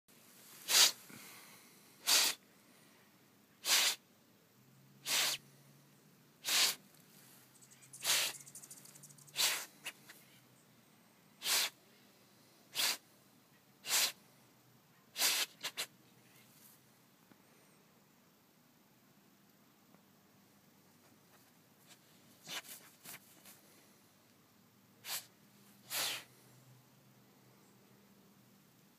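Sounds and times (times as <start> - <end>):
dog sniffing hard: 0.6 - 1.0, 2.0 - 2.4, 3.6 - 4.0, 5.0 - 5.4, 6.4 - 6.8, 8.0 - 8.4, 9.3 - 10.0, 11.4 - 11.8, 12.7 - 13.0, 13.8 - 14.2, 15.2 - 15.9, 22.4 - 23.2, 25.0 - 26.3.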